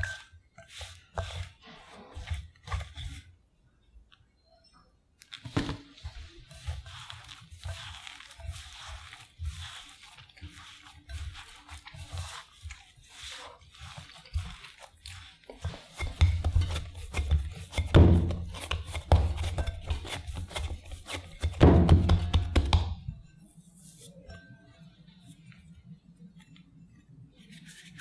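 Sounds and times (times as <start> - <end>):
dough thumping and squishing: 0.0 - 3.3, 5.4 - 23.2
starchy crumbs crunching and rustling: 5.2 - 22.2.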